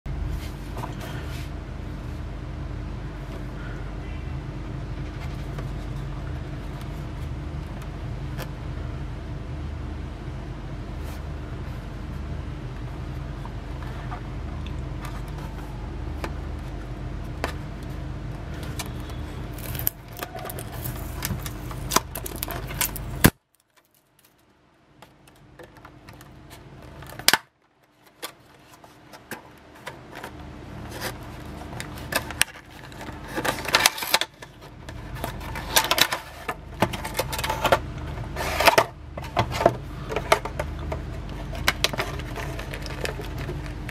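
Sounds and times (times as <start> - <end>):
low background rumble: 0.1 - 27.3
cardboard box and plastic tray handled: 15.0 - 24.0, 27.9 - 43.9.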